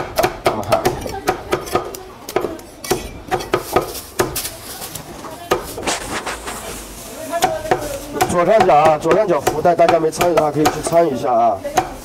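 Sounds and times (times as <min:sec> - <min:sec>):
cleaver chopping on wooden block: 0:00.0 - 0:04.4, 0:07.4 - 0:11.0.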